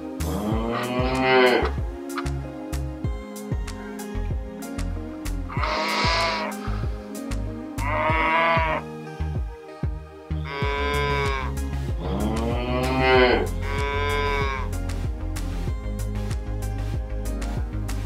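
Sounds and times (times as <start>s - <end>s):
background music with plucked beat: 0.0s - 18.0s
cow mooing: 0.2s - 1.8s, 5.5s - 6.6s, 7.8s - 8.9s, 10.4s - 14.8s.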